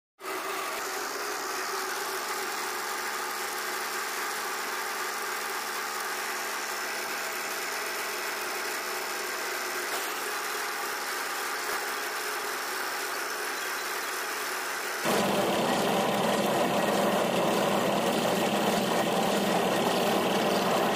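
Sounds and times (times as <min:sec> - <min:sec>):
concrete mixer running: 0:00.2 - 0:20.9.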